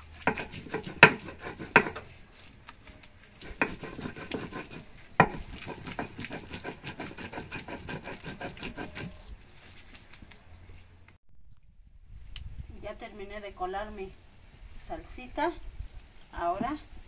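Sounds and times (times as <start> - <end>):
stone grinding on stone: 0.2 - 2.1, 3.4 - 9.3
stone knocks: 0.3 - 2.0, 3.5 - 6.4.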